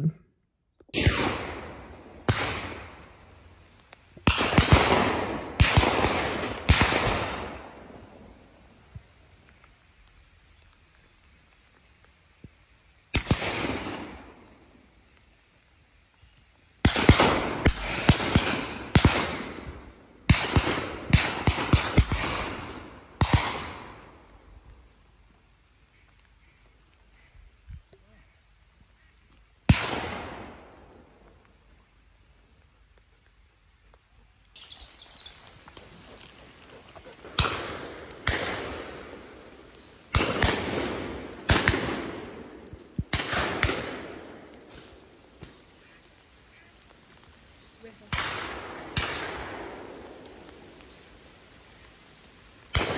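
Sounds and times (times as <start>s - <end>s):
shotgun shots echoing: 0.9s - 3.0s, 4.2s - 7.7s, 29.7s - 30.8s, 37.3s - 39.4s, 40.1s - 44.4s.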